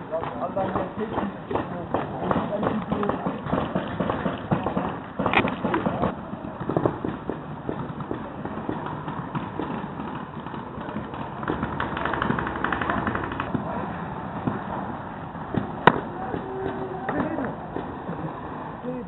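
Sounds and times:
paintball markers firing: 0.2s - 13.8s.

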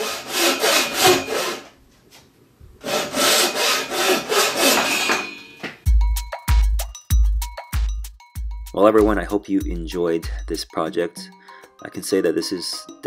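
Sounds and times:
saw cutting through wood: 0.0s - 1.7s, 2.8s - 5.5s
music with heavy beat: 5.8s - 10.7s.

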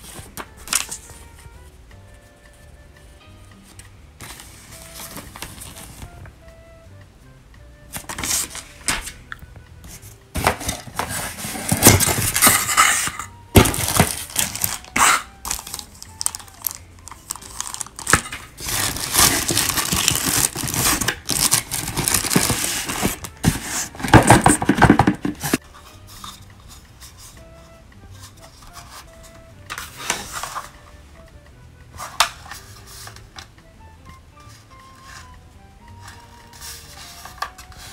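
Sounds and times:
paper and cardboard rustling: 0.0s - 1.5s, 3.6s - 6.2s, 7.9s - 27.4s, 28.2s - 30.8s, 32.0s - 33.4s, 36.0s - 37.9s
plastic bag crinkling: 13.6s - 25.6s.

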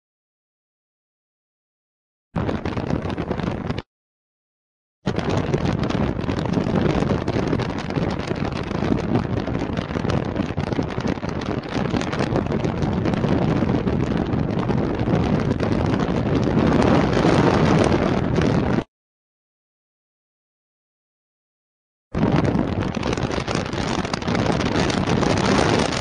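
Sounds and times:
wind buffeting microphone: 2.4s - 3.8s, 5.1s - 18.9s, 22.2s - 26.0s.

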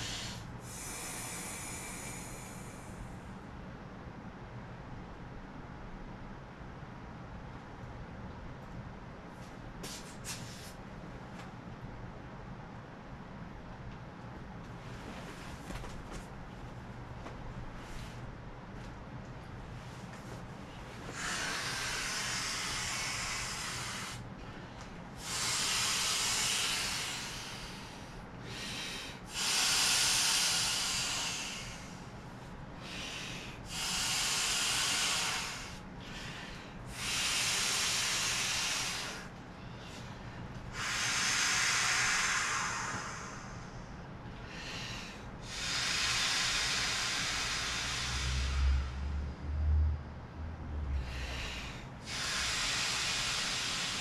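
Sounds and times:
quiet breaths drawn in: 0.0s - 3.5s, 19.6s - 54.0s
breath blown into inflatable valve: 29.3s - 31.8s, 33.7s - 35.8s, 40.8s - 43.7s, 51.0s - 54.0s.

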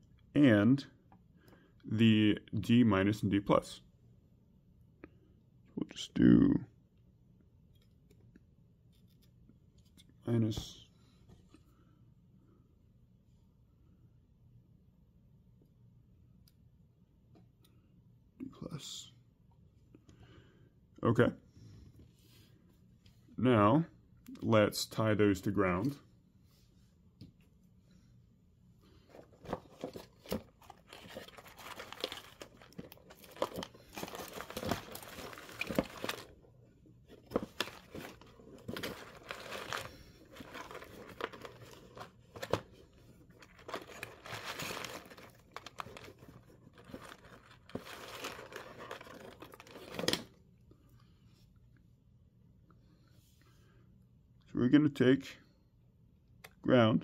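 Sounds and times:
rustling and crinkling handling noise: 28.8s - 50.4s.

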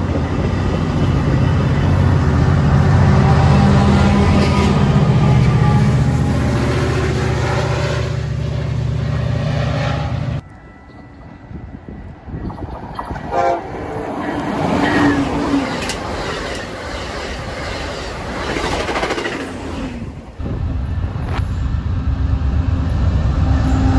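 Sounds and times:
diesel locomotive engine running: 0.0s - 19.2s, 20.4s - 23.9s
train horn: 2.8s - 12.4s, 13.2s - 15.3s, 23.4s - 23.9s
train wheels clattering on rails: 14.1s - 19.7s.

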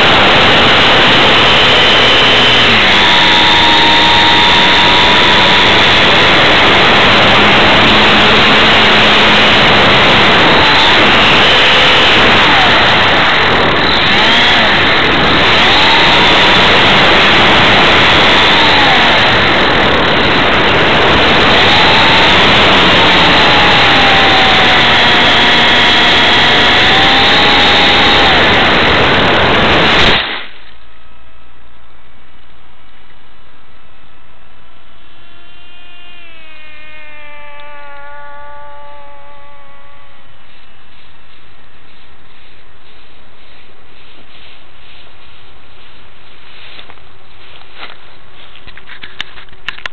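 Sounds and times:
wind and propeller rush: 0.0s - 30.6s
thin motor whine: 0.0s - 31.6s, 32.6s - 43.2s.

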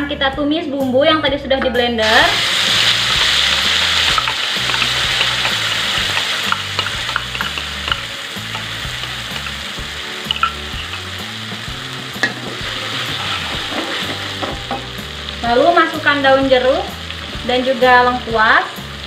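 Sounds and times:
metal spatula scraping wok: 2.0s - 9.6s, 12.1s - 14.6s
paste sizzling in hot oil: 2.0s - 19.0s.

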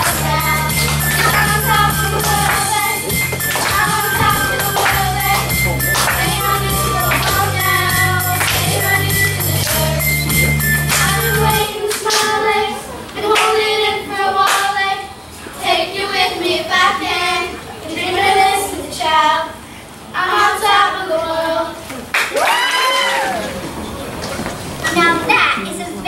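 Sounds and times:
sharp claps: 0.0s - 7.6s, 8.3s - 11.3s
children singing together: 0.0s - 21.9s.

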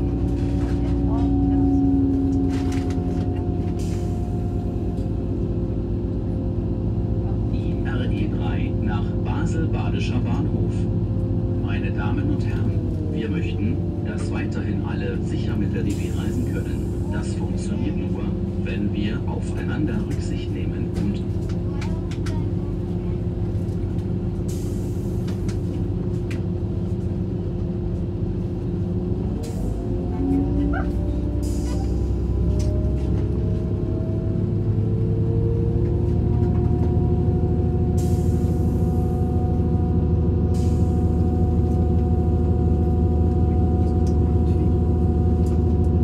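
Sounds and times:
rising train whine: 0.0s - 46.0s
train rumble and hum: 0.0s - 46.0s.

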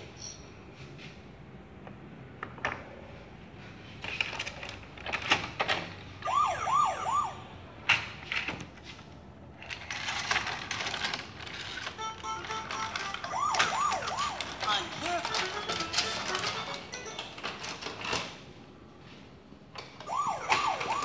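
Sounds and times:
plastic toy clicks and knocks: 9.6s - 18.4s
toy electronic siren wail: 12.0s - 16.7s, 20.1s - 21.0s.

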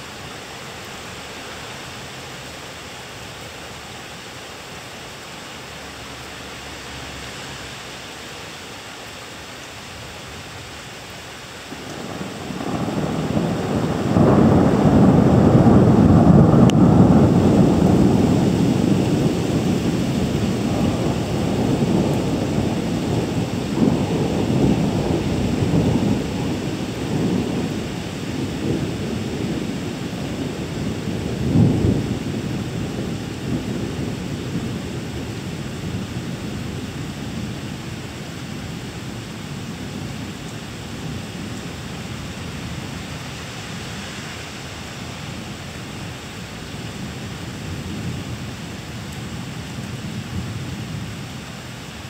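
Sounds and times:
rain hissing: 0.0s - 52.0s
rolling thunder: 11.7s - 43.0s.

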